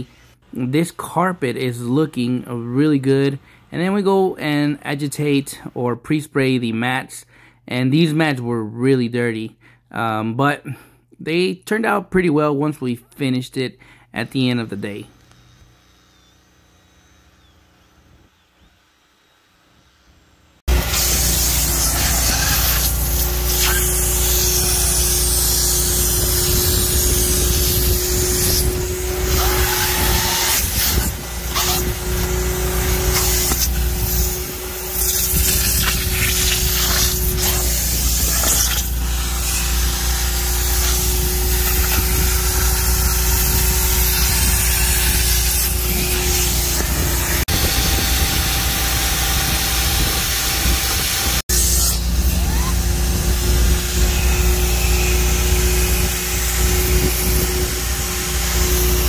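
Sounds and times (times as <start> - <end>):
carpet extractor vacuum motor: 15.1 - 51.4, 52.0 - 59.0.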